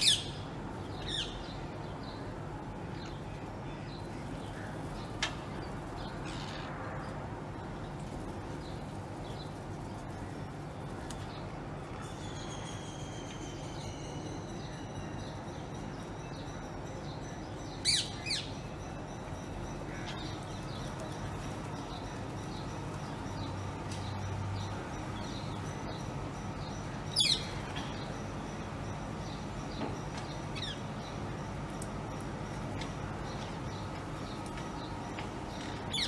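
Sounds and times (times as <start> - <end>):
low steady hum: 0.0 - 36.0.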